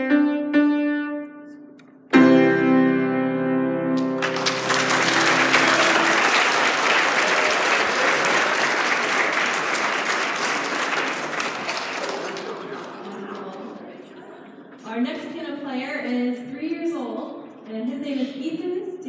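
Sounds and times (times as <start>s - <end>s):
grand piano notes and chord: 0.0s - 5.7s
audience applause: 4.0s - 13.7s.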